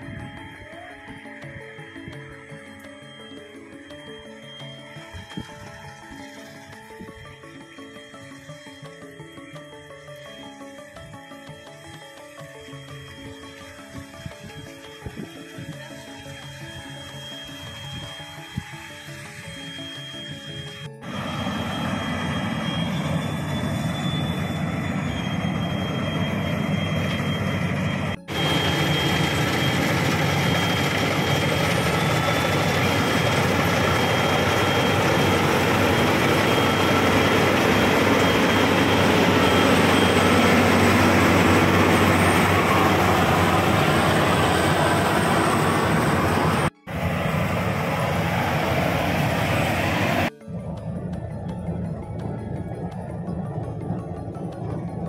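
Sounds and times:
combine harvester running: 13.5s - 55.0s.

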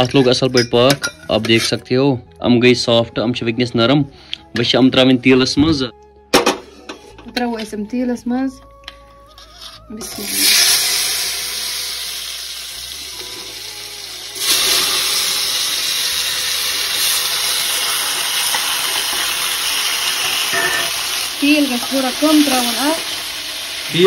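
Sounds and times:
hot oil sizzling: 10.0s - 24.0s.

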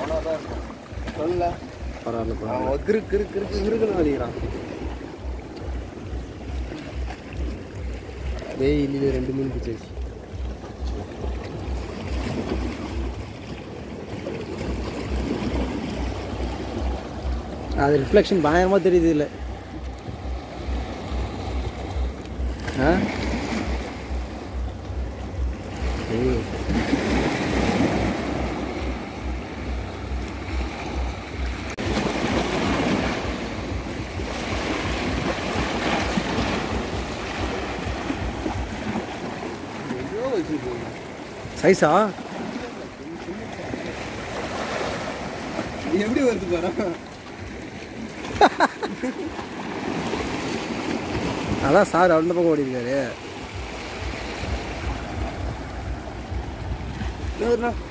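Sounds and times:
sea waves washing against jetty: 0.0s - 57.9s
low regular thumping: 53.5s - 57.9s
wind on microphone: 53.5s - 57.9s.

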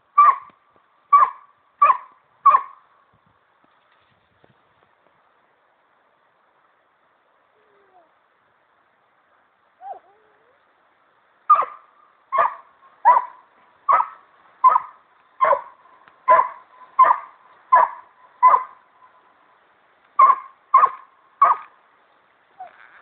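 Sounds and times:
dog barking: 1.1s - 2.7s, 11.5s - 15.7s, 16.3s - 18.8s, 20.2s - 21.7s.

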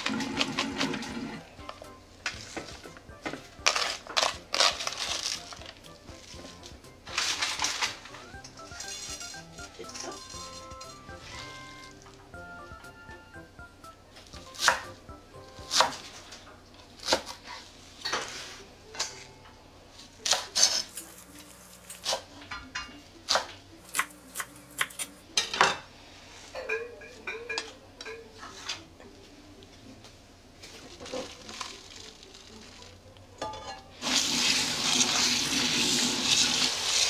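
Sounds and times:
knife chopping on wooden board: 14.5s - 14.9s, 15.6s - 16.0s.

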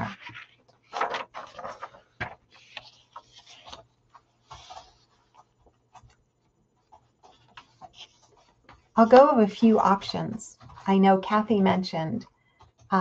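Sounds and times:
soft rustles: 0.0s - 9.0s.

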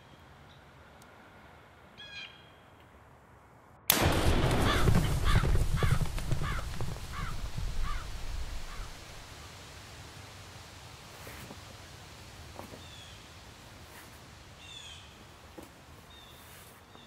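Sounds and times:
rifle shot: 3.9s - 9.0s
crow cawing: 4.4s - 9.0s.

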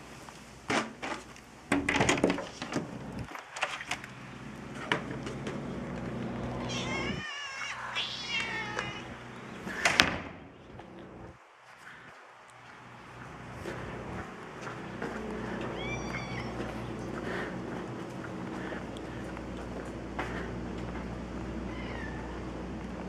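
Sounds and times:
transformer hum: 2.7s - 11.4s, 12.6s - 23.0s
cats meowing: 6.5s - 9.9s, 15.2s - 17.5s, 21.6s - 22.5s.

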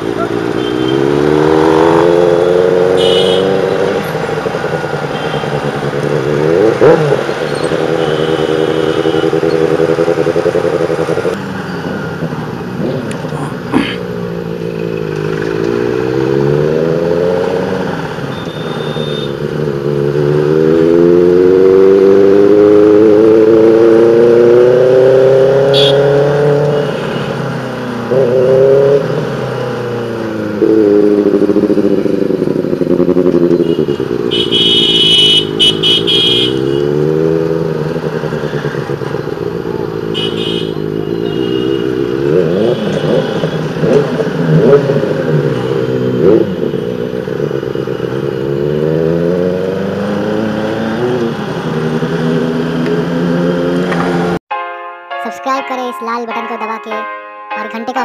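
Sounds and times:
motorcycle engine accelerating: 0.0s - 18.3s, 19.0s - 26.9s, 27.5s - 54.4s.

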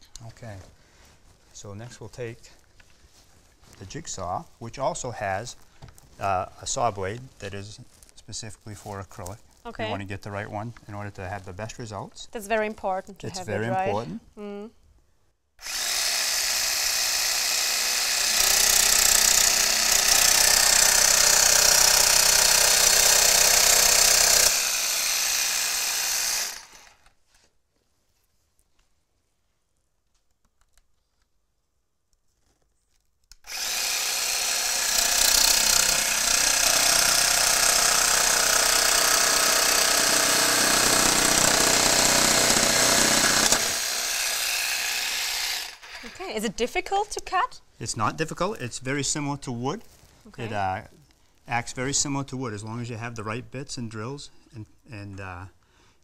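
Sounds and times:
jigsaw cutting acrylic: 15.6s - 27.1s, 33.3s - 46.3s.

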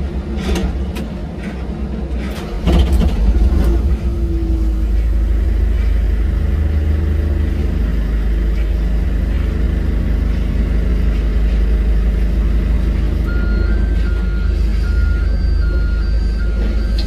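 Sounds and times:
jet engines rumbling with whine: 0.0s - 17.0s
two-note electronic beeping: 12.8s - 17.0s.

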